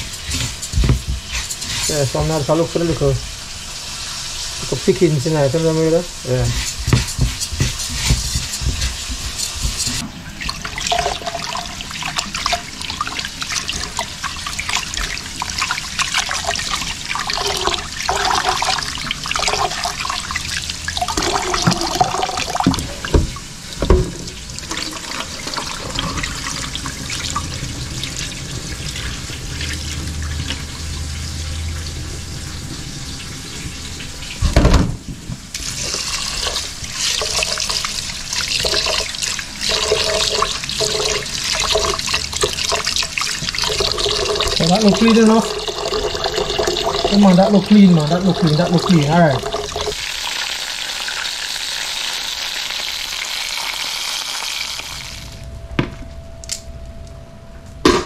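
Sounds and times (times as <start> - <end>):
loud thump: 34.6 - 35.0.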